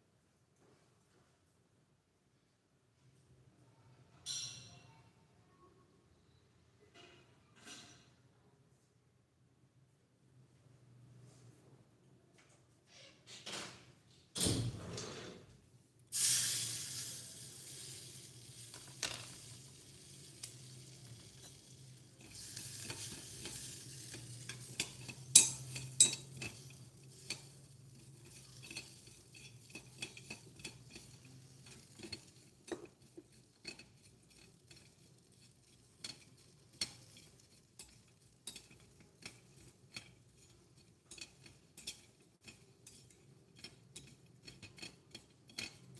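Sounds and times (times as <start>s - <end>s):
seasoning sizzling in a pot: 16.1s - 45.9s
metal ladle clinking against pot: 22.2s - 45.9s.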